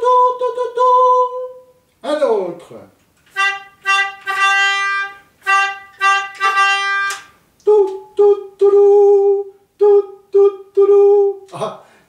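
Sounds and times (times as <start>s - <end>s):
melodica note: 3.3s - 7.4s.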